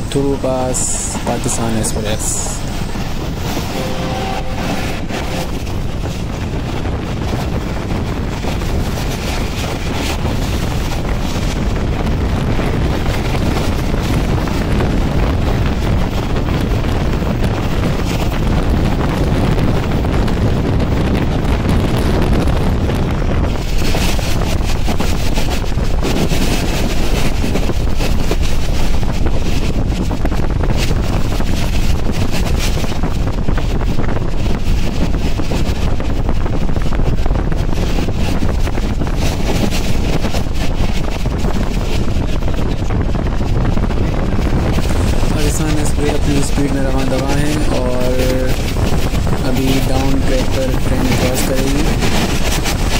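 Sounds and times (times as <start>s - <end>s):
train wheels rumbling on track: 0.0s - 52.9s
wind noise on microphone: 0.0s - 52.9s.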